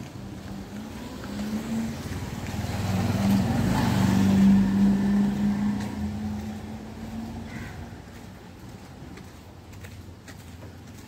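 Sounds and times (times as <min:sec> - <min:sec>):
vehicle engine passing by: 0:00.0 - 0:08.2.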